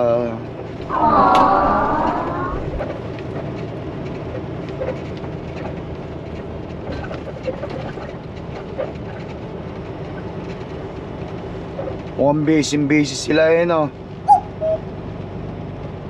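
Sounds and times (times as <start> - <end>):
truck diesel engine droning: 0.0 - 16.0
cab clicks and squeaks: 1.4 - 12.2.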